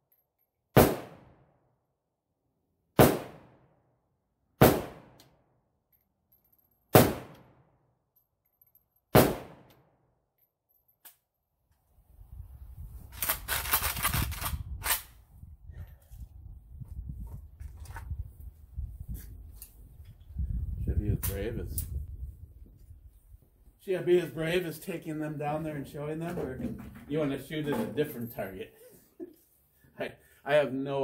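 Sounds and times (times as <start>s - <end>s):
rifle shots cracking: 0.8s - 1.4s, 3.0s - 3.6s, 4.6s - 5.2s, 6.9s - 7.6s, 9.1s - 9.7s
rifle handling rustling: 13.0s - 15.1s, 17.6s - 18.2s.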